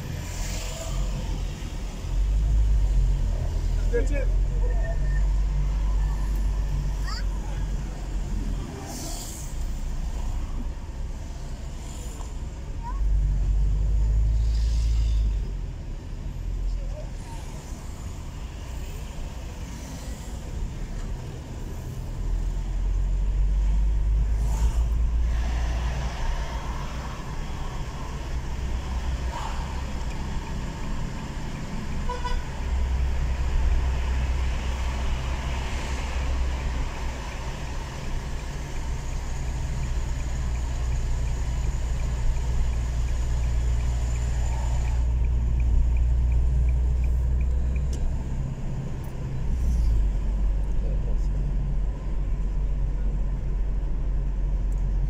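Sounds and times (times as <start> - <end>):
engine and road rumble: 0.0 - 55.0
light regular ticking: 36.3 - 49.2.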